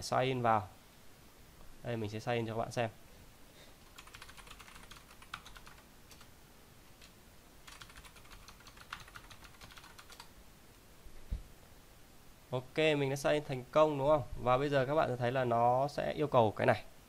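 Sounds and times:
typing on keyboard: 3.8s - 6.3s, 7.0s - 10.3s.

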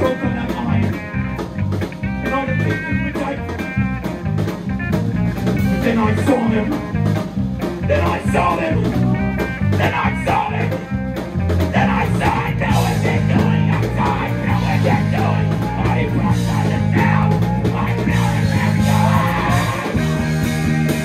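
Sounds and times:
man singing into a microphone: 0.0s - 1.1s, 5.6s - 6.9s, 7.8s - 9.1s, 9.7s - 10.8s, 11.7s - 20.3s
drums: 0.0s - 21.0s
electric bass: 0.0s - 21.0s
electric guitar: 0.0s - 21.0s
keyboard: 0.0s - 21.0s.

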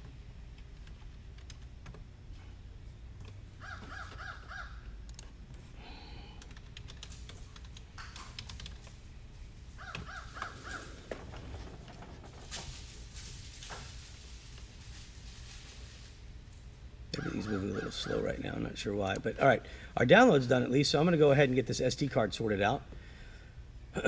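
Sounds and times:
computer keyboard typing: 0.5s - 2.0s, 6.3s - 9.0s
bird cawing: 3.6s - 4.9s, 9.8s - 11.3s, 17.2s - 18.5s.

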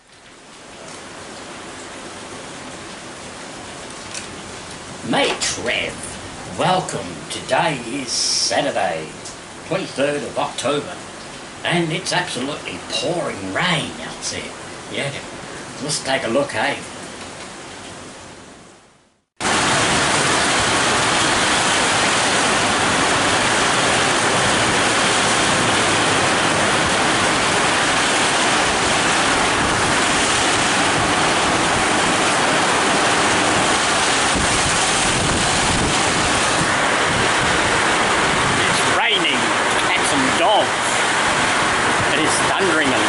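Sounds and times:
heavy rain pouring: 0.0s - 43.0s.

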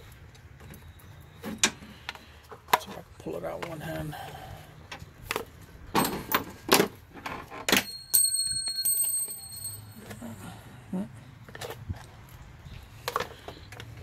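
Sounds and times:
high steady ringing tone: 7.7s - 10.6s.

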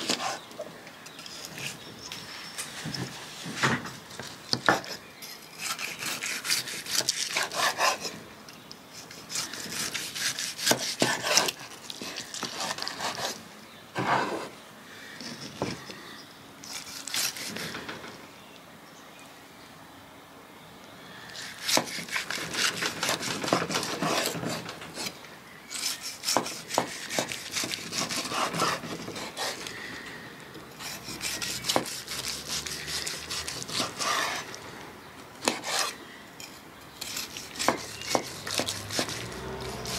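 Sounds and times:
knife sawing through steak: 5.6s - 8.1s, 9.0s - 13.4s, 21.4s - 24.6s, 25.7s - 29.7s, 30.8s - 34.6s, 35.4s - 36.0s, 37.0s - 39.9s.

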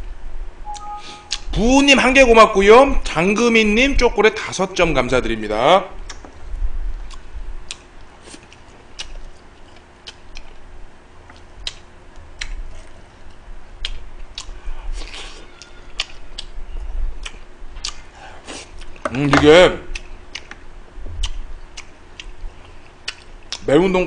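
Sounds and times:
chewing and mouth sounds: 7.0s - 10.6s, 11.2s - 16.6s, 17.2s - 19.1s, 19.9s - 20.6s, 21.2s - 23.7s.

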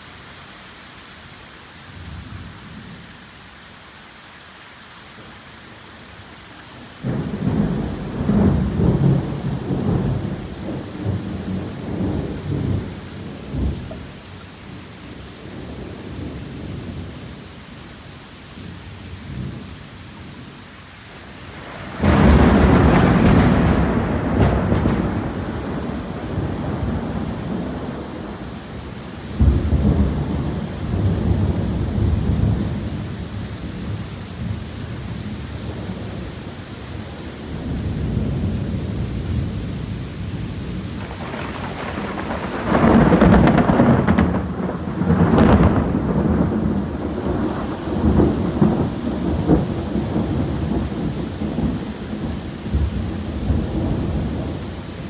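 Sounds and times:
heavy rain pouring: 0.0s - 55.0s
sharp thunderclap: 7.0s - 12.9s, 21.8s - 28.5s, 29.3s - 32.8s, 41.0s - 54.6s
thunder rumbling: 7.0s - 14.1s, 21.5s - 55.0s.

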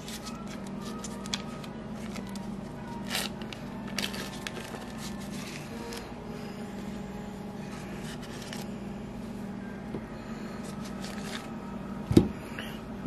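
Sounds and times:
paper wrapper rustling: 0.0s - 6.1s, 7.7s - 8.7s, 10.6s - 11.5s
steady low hum: 0.0s - 13.0s.

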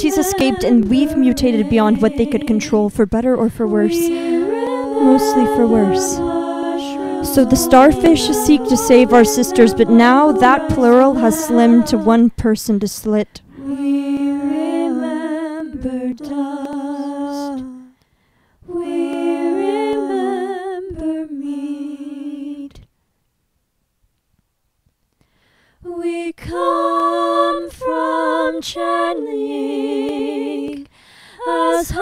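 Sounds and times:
woman singing wordless notes: 0.0s - 18.0s, 31.4s - 32.0s.

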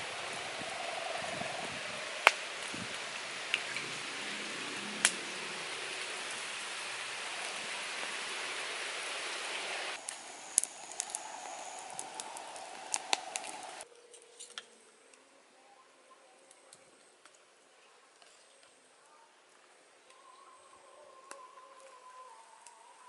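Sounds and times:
wood fire crackling and popping: 0.0s - 4.3s, 5.0s - 13.9s
steady hiss: 0.0s - 13.9s.

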